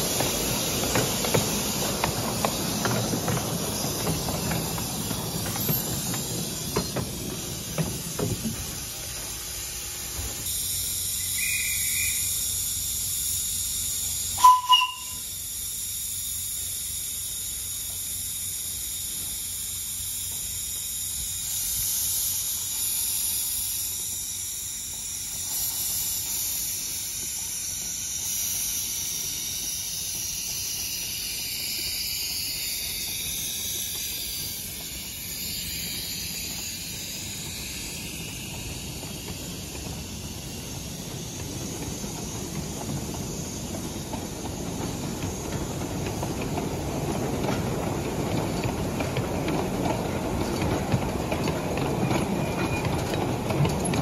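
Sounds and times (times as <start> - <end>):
wheels rumbling over track: 0.0 - 15.2, 20.0 - 54.0
steam locomotive hissing: 0.0 - 54.0
short whistle toots: 11.2 - 12.4, 14.4 - 15.3.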